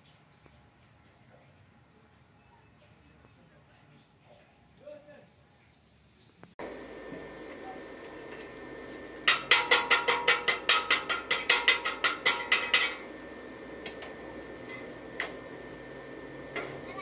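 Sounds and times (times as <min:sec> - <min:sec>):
metal tapping on steel: 0:09.2 - 0:13.0.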